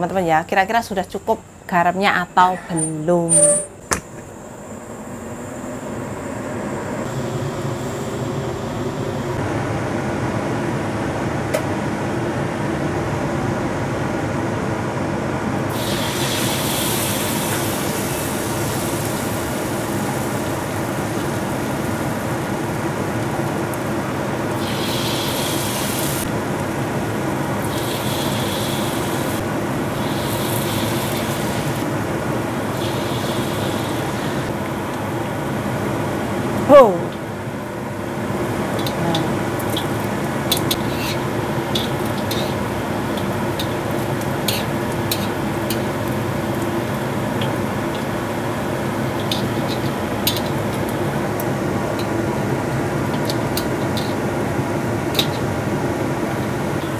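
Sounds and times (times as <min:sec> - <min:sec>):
steady hum: 0:00.0 - 0:56.9
food sizzling in hot oil: 0:15.7 - 0:34.9, 0:38.5 - 0:54.4.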